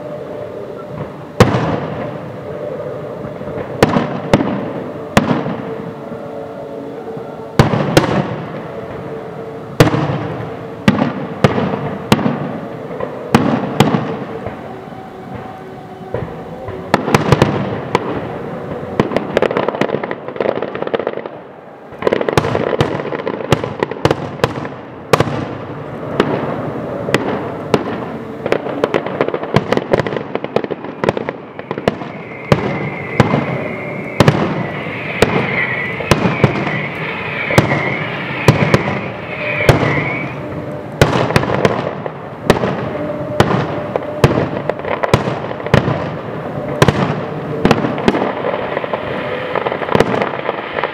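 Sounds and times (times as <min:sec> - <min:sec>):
high wavering whistle: 0:00.0 - 0:10.9, 0:11.8 - 0:19.9, 0:26.5 - 0:42.0, 0:42.7 - 0:50.9
fireworks crackling: 0:00.0 - 0:50.9
firework shells bursting: 0:27.2 - 0:50.9.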